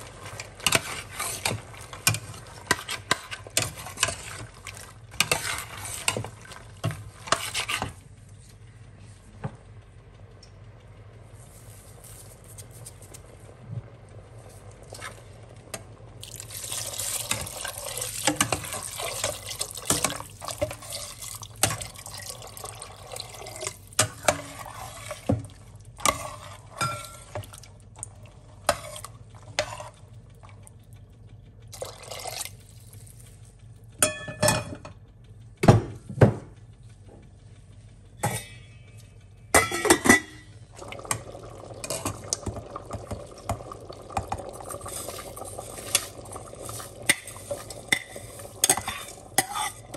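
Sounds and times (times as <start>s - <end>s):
metal spoon stirring in pot: 0.0s - 8.0s, 16.2s - 30.6s, 41.1s - 49.9s
liquid pouring into pot: 16.2s - 30.8s, 31.7s - 33.2s, 40.7s - 49.9s.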